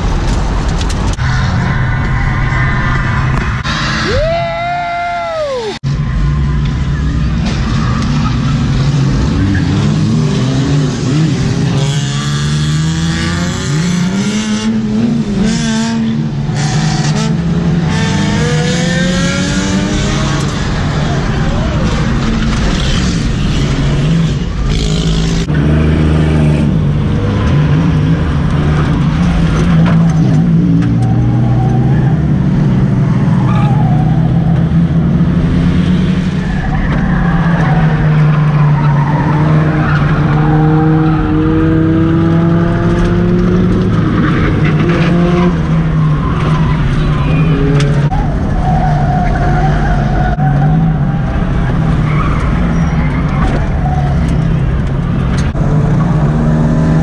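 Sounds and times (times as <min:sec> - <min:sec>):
tires skidding and squealing: 0:00.0 - 0:57.0.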